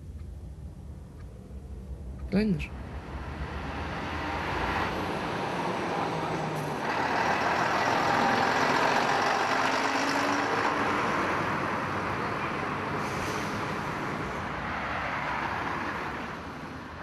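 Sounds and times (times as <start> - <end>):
low in-car hum: 0.0 - 3.1
street traffic: 0.0 - 17.0
large vehicle passing: 2.0 - 17.0.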